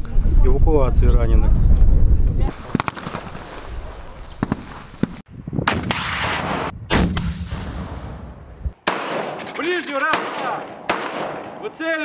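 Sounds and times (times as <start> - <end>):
gunshots with echo: 5.7 - 7.8, 8.8 - 12.0.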